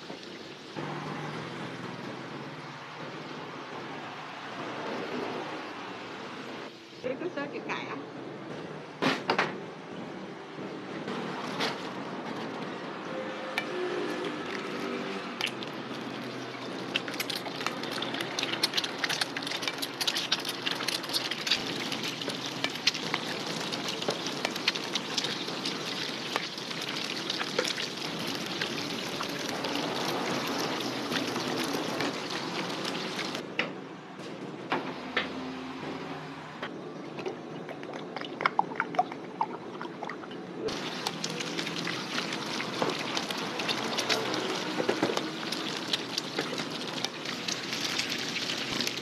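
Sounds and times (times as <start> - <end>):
eggs sizzling in oil: 0.0 - 1.0, 13.4 - 33.4, 40.7 - 49.0
liquid pouring into pot: 14.2 - 33.4, 37.7 - 49.0.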